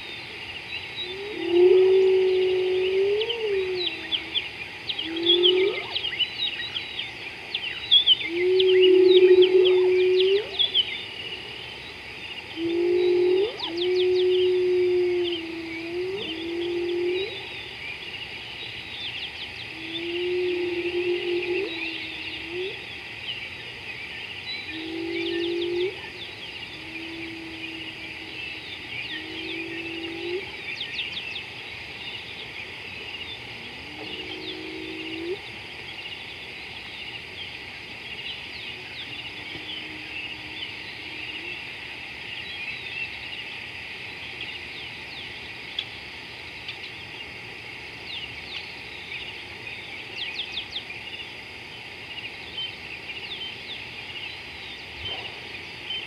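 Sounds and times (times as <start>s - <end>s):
chirring and chirping animals: 0.0s - 56.0s
low animal calls: 1.0s - 6.2s, 8.3s - 10.8s, 12.5s - 17.6s, 19.7s - 22.9s, 24.7s - 30.6s, 33.6s - 35.5s.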